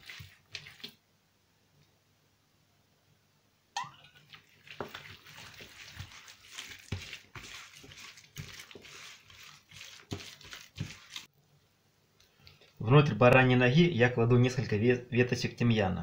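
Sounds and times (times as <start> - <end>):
wet meat squishing and slapping: 0.0 - 1.0, 4.1 - 11.3.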